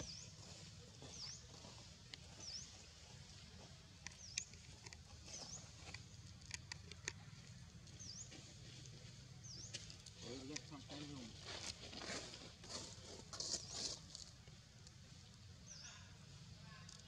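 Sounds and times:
dry leaf crackling: 4.4 - 15.3.

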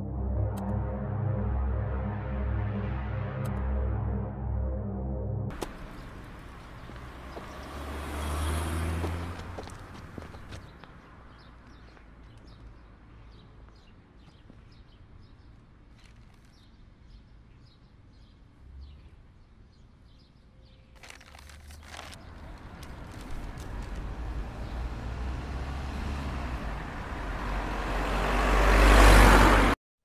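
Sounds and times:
low rumble: 0.0 - 7.1
traffic noise: 5.5 - 29.8.

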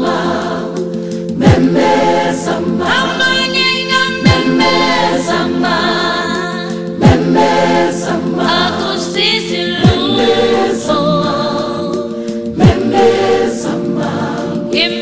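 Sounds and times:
choir singing: 0.0 - 15.0
deep beat dropping in pitch: 1.4 - 3.1, 4.2 - 5.3, 7.0 - 8.5, 9.8 - 14.7.

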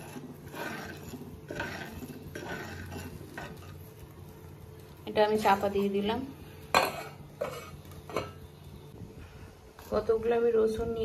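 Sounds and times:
metal spoon stirring in a pot: 0.0 - 8.6.

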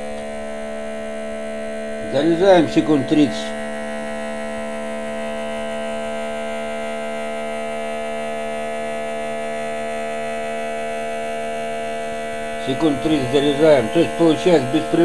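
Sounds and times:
small electric motor humming: 0.0 - 15.0.

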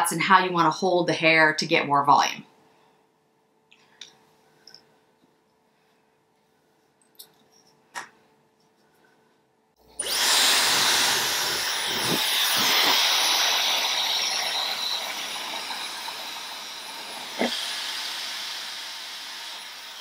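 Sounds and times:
hair dryer blowing: 10.0 - 20.0.

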